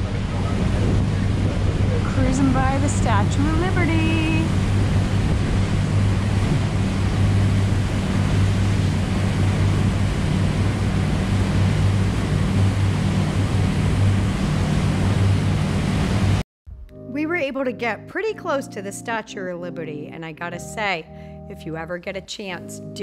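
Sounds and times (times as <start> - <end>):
boat diesel engines droning: 0.0 - 16.4
rush of wind and water: 0.0 - 16.4.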